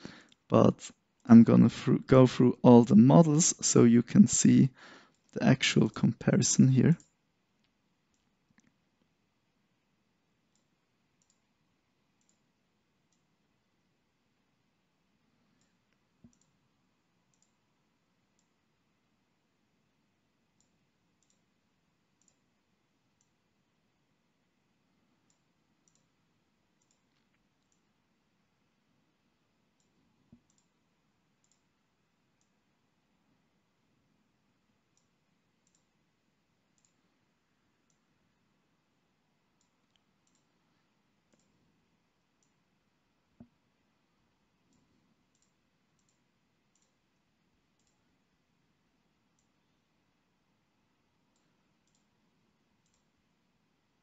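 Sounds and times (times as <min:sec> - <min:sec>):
computer mouse clicks: 0:10.4 - 0:11.5, 0:12.2 - 0:12.5, 0:15.5 - 0:16.6, 0:17.3 - 0:17.6, 0:20.5 - 0:21.6, 0:22.2 - 0:22.5, 0:25.2 - 0:27.9, 0:29.7 - 0:32.6, 0:34.9 - 0:36.0, 0:36.7 - 0:37.1, 0:37.8 - 0:38.1, 0:39.6 - 0:40.6, 0:41.3 - 0:41.6, 0:44.6 - 0:47.1, 0:47.7 - 0:48.1, 0:49.3 - 0:49.8, 0:51.2 - 0:53.2.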